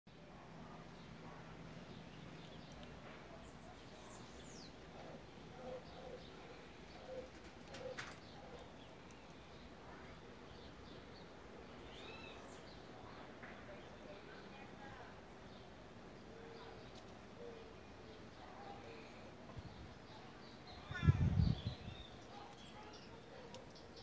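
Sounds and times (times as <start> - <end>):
bird calls: 1.6 - 14.2
high bird chirp: 11.4 - 13.0.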